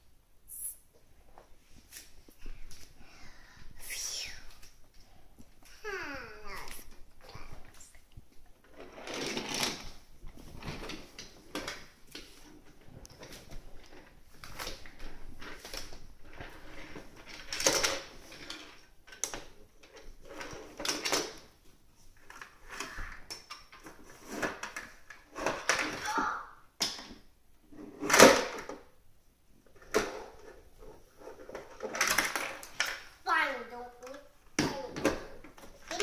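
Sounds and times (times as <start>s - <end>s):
toys clattering on hard floor: 8.6s - 21.5s, 22.2s - 26.2s, 26.8s - 29.0s, 29.7s - 33.2s.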